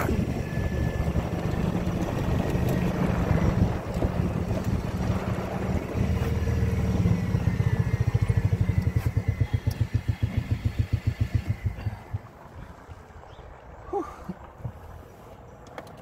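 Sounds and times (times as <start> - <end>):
small golf cart engine running: 0.0 - 12.6.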